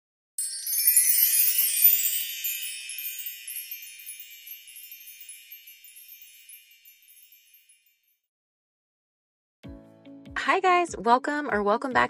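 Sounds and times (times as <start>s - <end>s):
high-pitched tinkling chimes: 0.4s - 8.2s.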